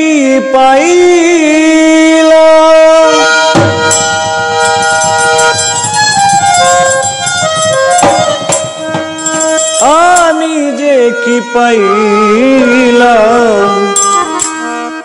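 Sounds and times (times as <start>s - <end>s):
man singing: 0.0s - 3.5s, 9.7s - 14.3s
harmonium melody: 0.0s - 15.0s
sharp taps: 3.6s - 10.3s.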